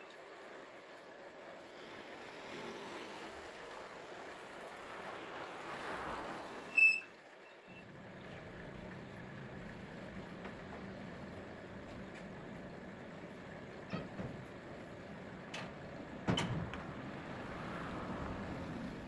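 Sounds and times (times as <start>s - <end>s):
vehicle passing by: 1.7s - 6.7s, 16.7s - 19.0s
high-pitched squeak: 6.7s - 7.8s.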